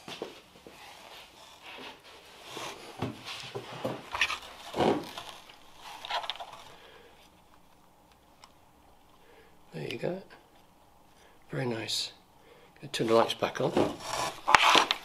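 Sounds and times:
scraping and rustling of handling: 0.0s - 8.5s, 12.9s - 15.0s.

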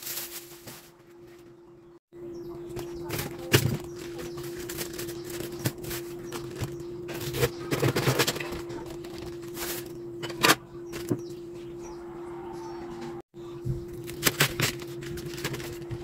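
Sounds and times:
cabbage leaves snapping: 14.0s - 15.7s.

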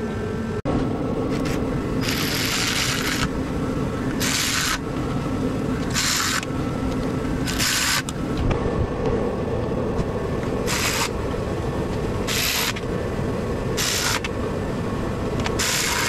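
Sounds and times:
steady low rumble: 0.0s - 16.0s
power ratchet whirring: 1.3s - 3.4s, 4.0s - 5.1s, 5.7s - 8.2s, 10.6s - 11.3s, 12.2s - 12.9s, 13.8s - 14.4s, 15.4s - 16.0s.

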